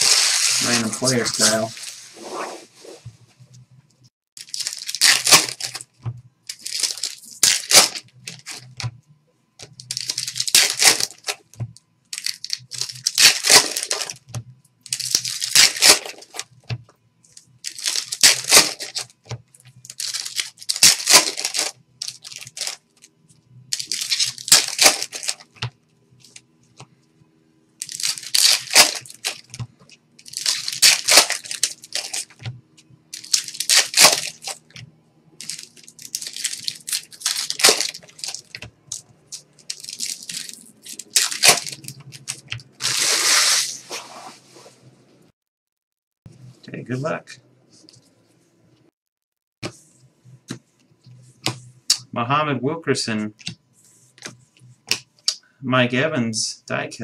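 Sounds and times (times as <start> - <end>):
card pack wrappers tearing: 0.0 - 1.9, 4.4 - 5.9, 6.5 - 8.8, 9.8 - 11.4, 12.1 - 14.2, 14.8 - 16.5, 17.6 - 19.1, 19.9 - 23.0, 23.7 - 25.6, 27.8 - 29.6, 30.2 - 32.4, 33.1 - 34.7, 35.4 - 44.0.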